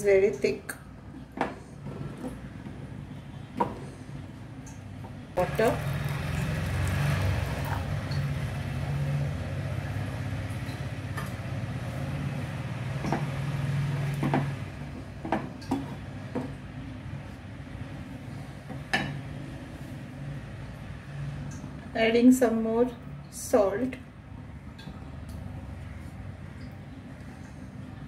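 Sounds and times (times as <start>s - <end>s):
water splashing into dal: 5.4s - 9.1s.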